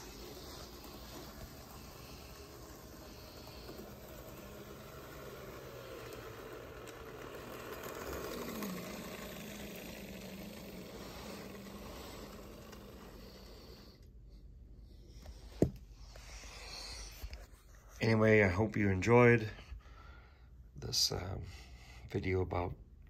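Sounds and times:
model train motor hum and wheel rattle: 0.0s - 14.1s.

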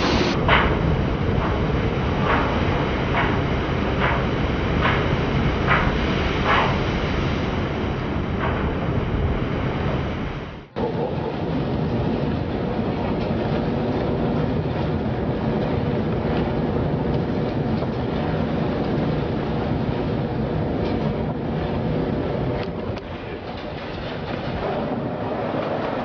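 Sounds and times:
low drone: 0.0s - 4.4s
heavy seas breaking against ship: 0.0s - 26.0s
storm wind rumble: 0.0s - 26.0s.

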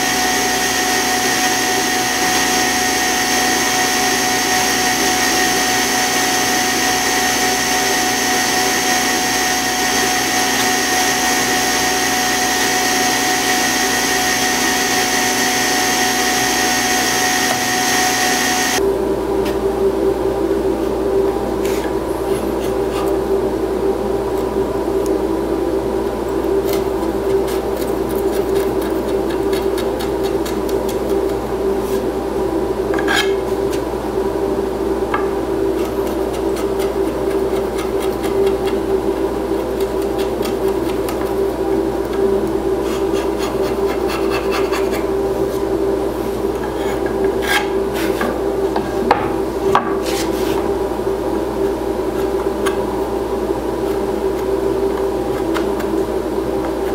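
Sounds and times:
mechanical hum: 0.0s - 56.9s
chisel scraping wood: 42.8s - 45.1s, 46.6s - 48.3s.

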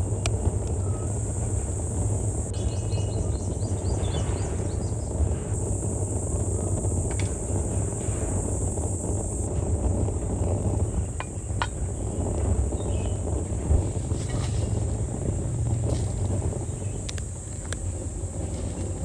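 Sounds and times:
high hiss: 0.0s - 19.0s
low rumble: 0.0s - 19.0s
bird chirps: 2.5s - 5.2s.

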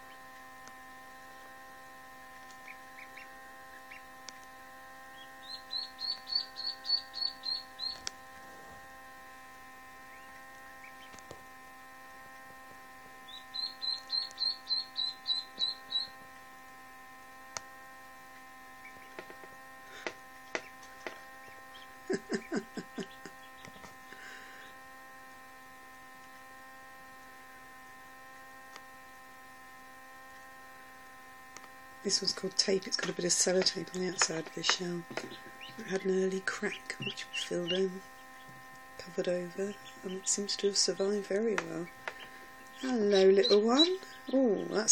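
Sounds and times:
incubator electrical hum: 0.0s - 44.9s
low rapid pulsing: 0.0s - 44.9s
duckling peeping: 2.6s - 4.2s, 5.0s - 8.7s, 10.0s - 11.3s, 13.2s - 16.3s, 18.8s - 24.9s, 32.1s - 44.9s.

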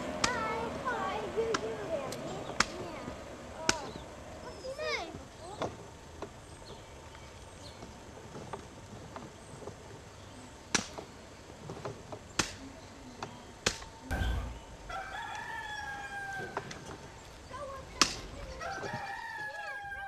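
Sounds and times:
short low rumble: 14.1s - 14.9s.

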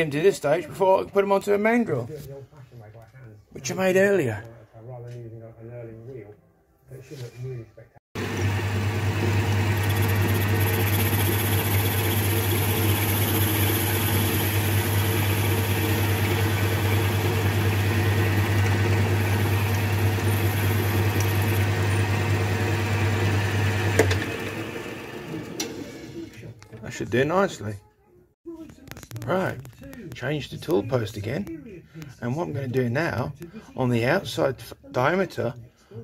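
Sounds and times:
metal lathe motor humming: 8.2s - 26.2s.

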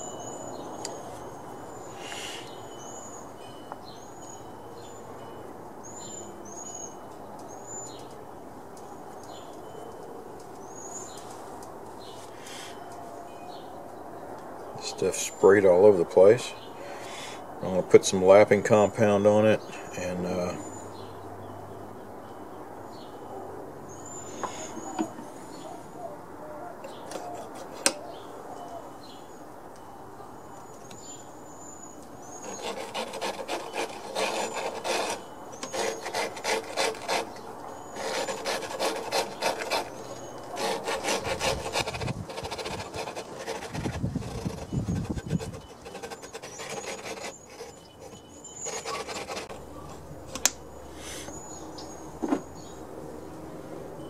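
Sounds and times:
gritty grinding strokes: 32.4s - 49.6s.

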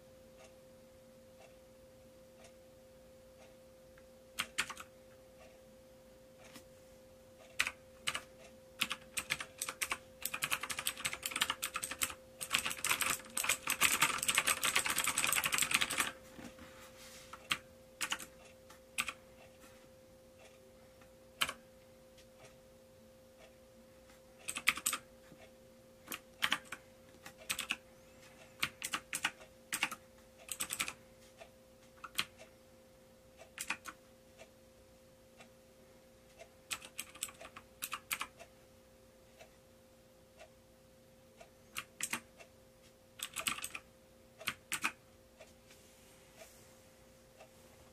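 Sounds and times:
mechanical keyboard keys clacking: 4.4s - 4.9s, 7.6s - 16.2s, 17.4s - 18.3s, 24.5s - 25.0s, 26.1s - 27.8s, 28.6s - 31.0s, 33.6s - 34.0s, 36.7s - 38.3s, 41.8s - 42.2s, 43.2s - 43.8s, 44.4s - 45.0s.

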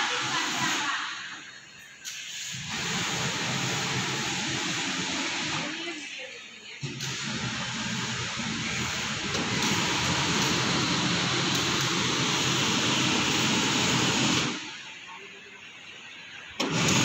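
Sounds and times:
steam hissing: 0.0s - 1.3s, 2.0s - 5.9s, 6.8s - 14.7s.

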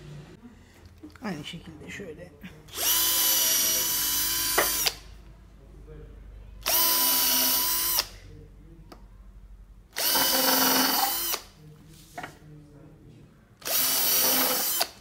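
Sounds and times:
cordless drill whine: 2.7s - 5.0s, 6.6s - 8.1s, 10.0s - 11.5s, 13.6s - 15.0s
drill bit grinding wood: 2.8s - 5.0s, 10.0s - 11.4s, 13.6s - 15.0s.

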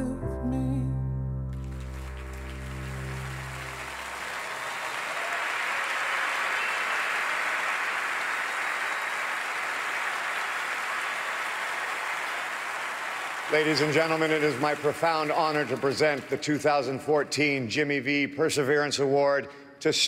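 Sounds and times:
large audience applauding: 1.5s - 17.1s.

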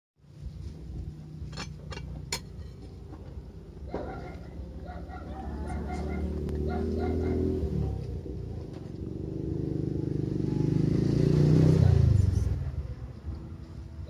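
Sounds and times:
chickens calling: 3.9s - 7.6s.

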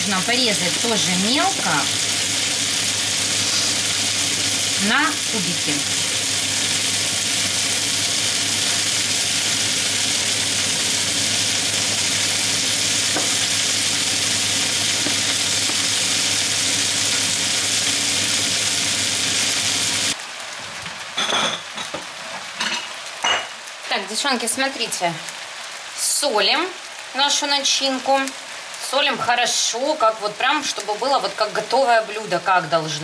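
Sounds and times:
onion and potato sizzling in pan: 0.0s - 33.0s.

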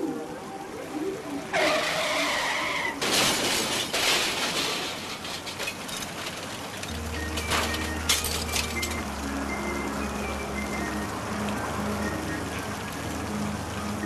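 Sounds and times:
car tyres screeching: 1.5s - 4.5s
car crash: 1.6s - 9.0s
glass shattering: 3.0s - 9.0s.

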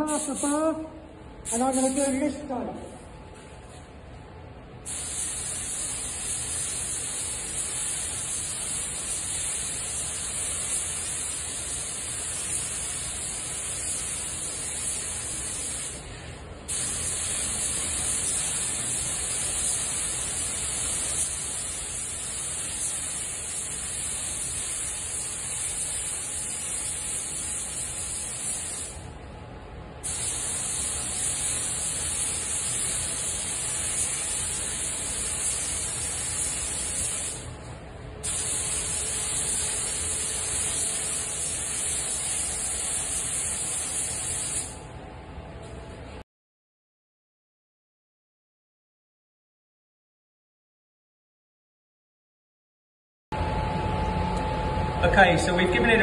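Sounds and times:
paint spray gun hissing: 4.9s - 16.1s, 16.7s - 29.0s, 30.0s - 37.5s, 38.2s - 44.8s.

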